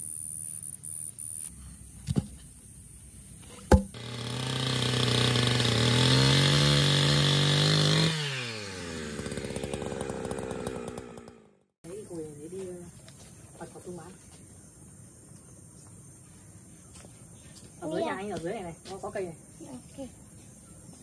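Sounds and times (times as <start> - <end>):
small petrol engine running: 3.9 - 11.7.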